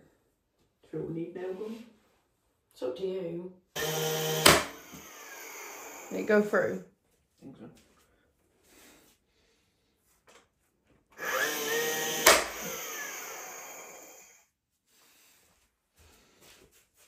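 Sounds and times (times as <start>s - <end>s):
nail gun whine: 3.8s - 6.3s, 11.2s - 14.4s
nail gun firing crack: 3.9s - 5.0s, 12.0s - 12.9s.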